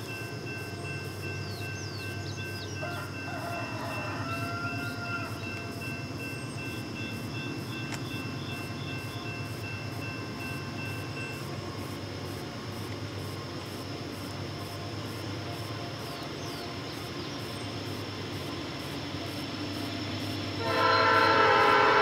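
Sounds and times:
crossing bell ringing: 0.0 - 12.8, 20.2 - 22.0
rooster crowing: 2.8 - 5.4.

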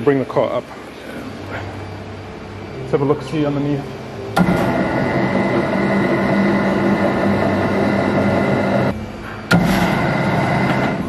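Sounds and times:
electric pump motor humming: 3.0 - 11.0.

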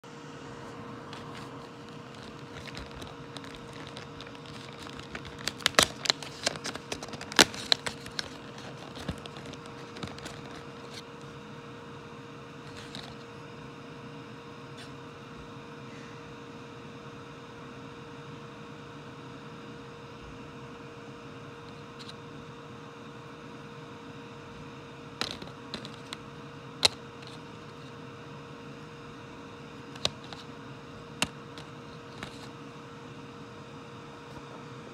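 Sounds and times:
steady background hum: 0.0 - 34.9
cardboard crackling and tearing: 1.2 - 11.2, 12.6 - 13.2, 25.2 - 26.2, 31.1 - 32.5.

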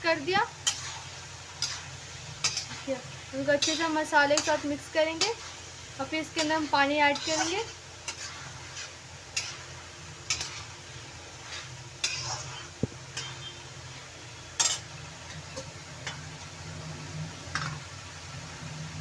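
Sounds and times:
food sizzling softly: 0.0 - 19.0
spatula scraping a metal pan: 0.5 - 13.7, 14.6 - 15.0.

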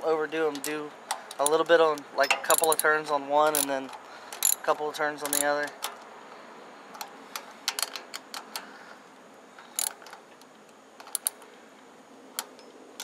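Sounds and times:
ratchet wrench clicking: 0.6 - 5.6, 9.8 - 10.0, 11.0 - 11.4.

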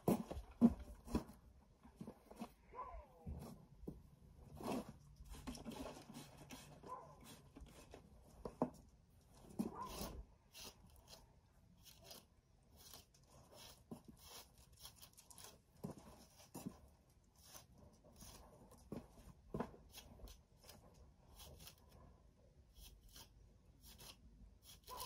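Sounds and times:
brush scratching through horse hair: 4.4 - 8.1, 9.4 - 22.0, 22.8 - 25.0.

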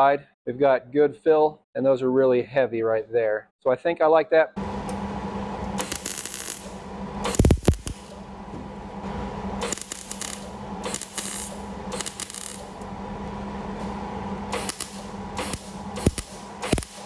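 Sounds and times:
steady low hum: 4.6 - 17.0
welding arc crackle and sputter: 5.6 - 8.5, 9.5 - 13.0, 14.4 - 17.0.

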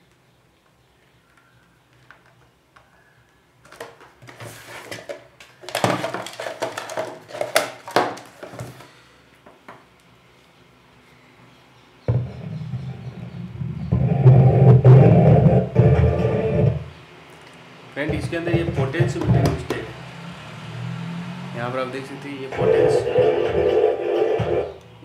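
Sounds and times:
hands handling cables and objects: 3.6 - 8.9
subwoofer playing bass-heavy music: 12.1 - 16.9, 18.1 - 19.9, 22.6 - 24.8.

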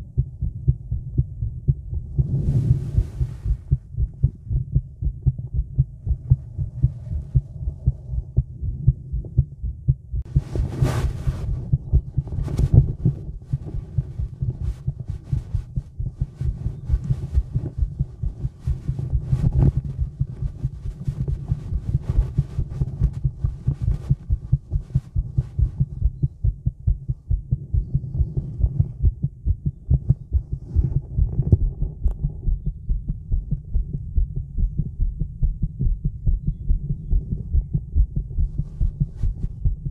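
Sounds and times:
heartbeat thumps: 0.0 - 39.9
scraping noises: 10.3 - 14.2.

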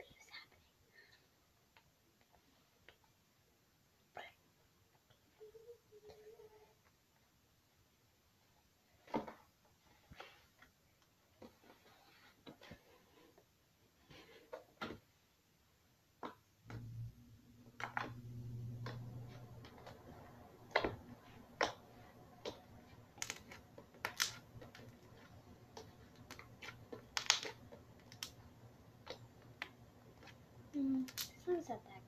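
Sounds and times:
steady low hum: 16.7 - 32.0
slime clicking and popping: 22.4 - 24.9, 25.8 - 28.4, 31.0 - 31.4.

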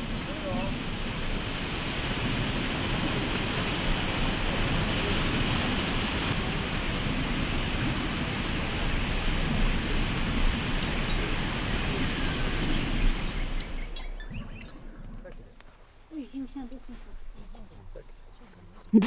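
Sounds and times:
waterfall rushing: 0.0 - 13.9
birds chirping: 0.0 - 19.0.

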